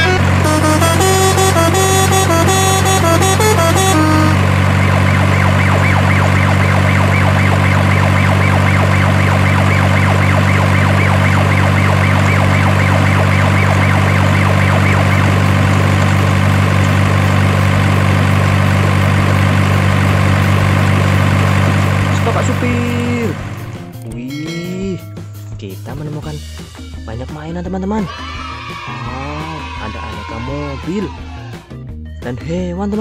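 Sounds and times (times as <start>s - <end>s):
musical notes: 0.0s - 6.8s, 23.5s - 26.2s
warbling siren: 0.0s - 17.4s
low engine drone: 0.0s - 24.1s.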